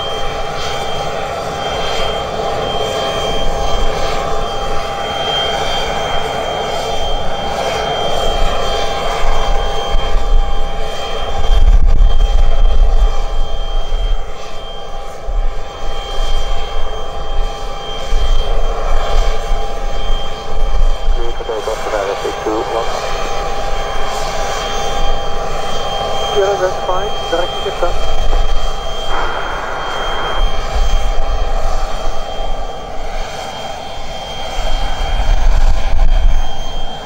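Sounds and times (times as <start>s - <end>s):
aircraft turbine engines whining: 0.0s - 37.0s
deep rumble: 26.4s - 32.8s.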